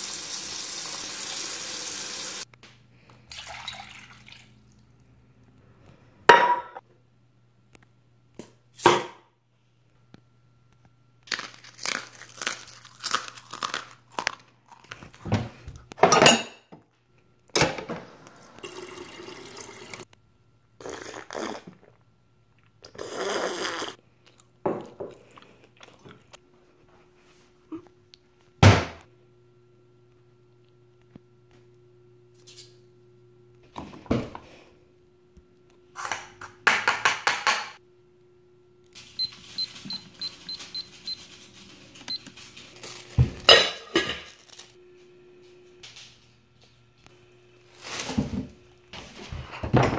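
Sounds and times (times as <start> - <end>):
kitchen utensils knocking and clicking: 36.2 - 37.8
kitchen timer beeping: 39.2 - 41.3.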